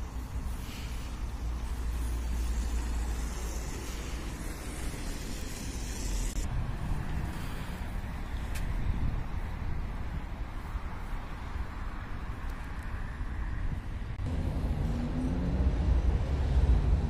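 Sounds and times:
tyre hiss: 0:00.0 - 0:08.8
cars driving past: 0:00.0 - 0:17.0.

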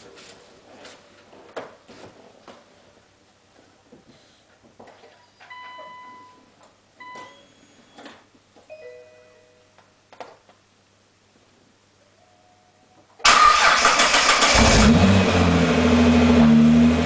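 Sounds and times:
electronic warning beeps: 0:07.0 - 0:08.1
low two-note chime: 0:08.7 - 0:09.7.

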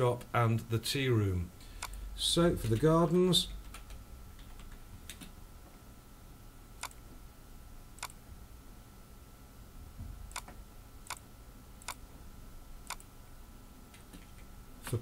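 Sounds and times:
faint steady hum: 0:00.0 - 0:15.0
computer mouse clicking: 0:03.6 - 0:05.3, 0:06.8 - 0:07.0, 0:10.3 - 0:11.2, 0:11.8 - 0:12.0, 0:12.8 - 0:13.1.

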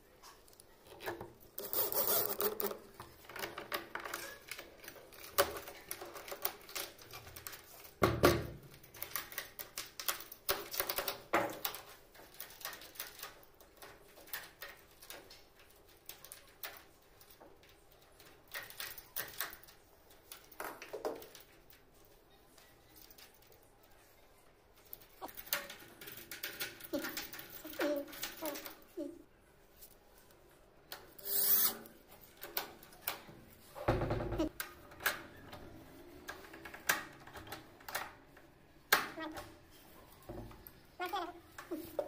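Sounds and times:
screws driven into wood: 0:01.6 - 0:02.7, 0:31.2 - 0:31.9.

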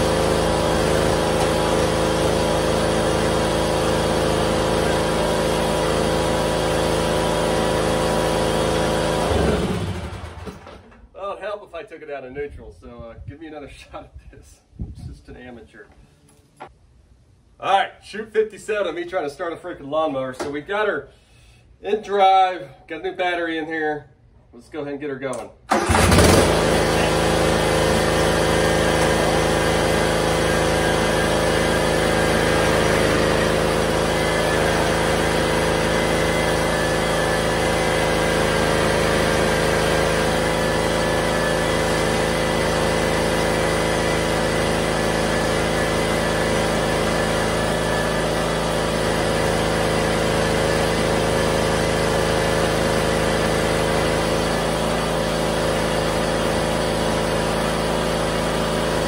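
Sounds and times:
mower engine running: 0:00.0 - 0:11.0, 0:25.7 - 0:59.0.

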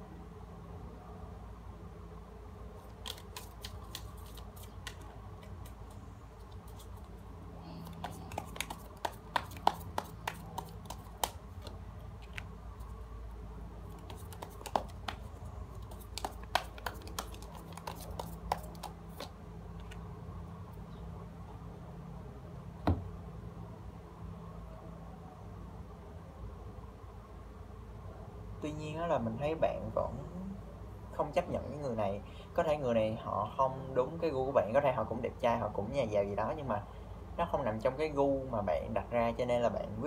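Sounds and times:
steady low hum: 0:00.0 - 0:40.0
cards being shuffled: 0:02.8 - 0:13.0, 0:13.8 - 0:20.0.

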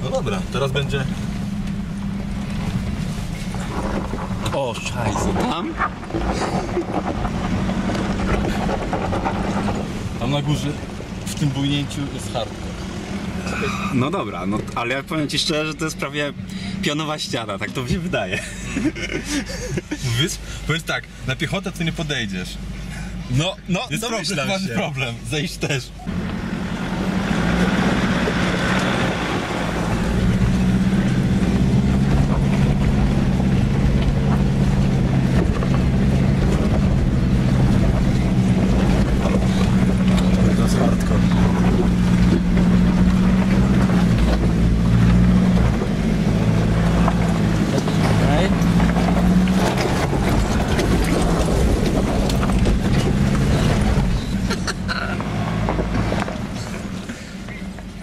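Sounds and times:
diesel engine pulling under load: 0:00.0 - 0:25.0, 0:25.9 - 0:58.0
stones clicking under tyres: 0:00.8 - 0:12.4, 0:27.0 - 0:58.0.

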